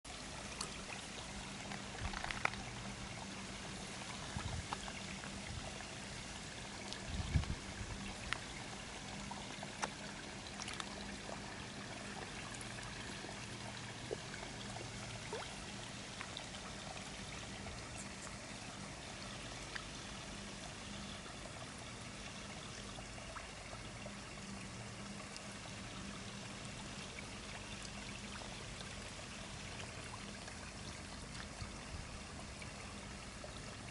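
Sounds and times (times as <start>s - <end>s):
water pouring into pond: 0.1s - 33.9s.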